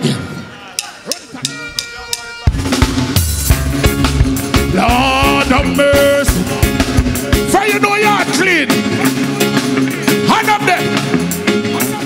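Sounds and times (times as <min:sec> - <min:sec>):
live reggae band playing: 0:00.0 - 0:12.0
deep bass: 0:02.5 - 0:12.0.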